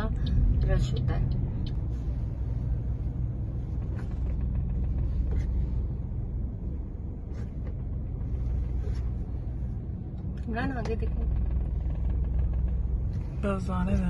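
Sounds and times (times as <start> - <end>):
car rumble inside cabin: 0.0 - 14.0.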